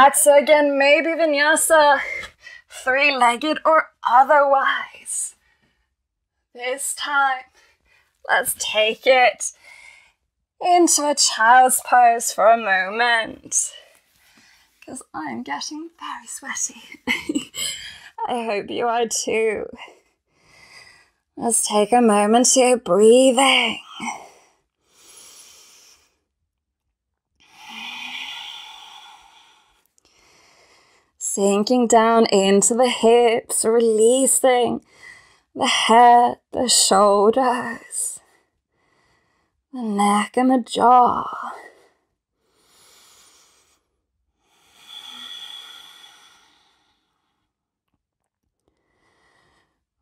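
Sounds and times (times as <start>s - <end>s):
woman breathing: 9.6s - 10.2s, 17.5s - 18.2s, 27.4s - 31.2s, 41.3s - 47.6s, 48.7s - 49.9s.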